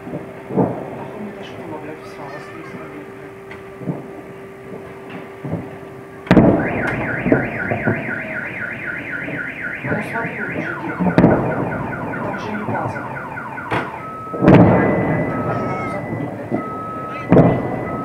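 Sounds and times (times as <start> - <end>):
explosion booms: 0.0 - 1.3, 4.7 - 8.5, 9.2 - 18.0
car alarm wailing: 1.2 - 18.0.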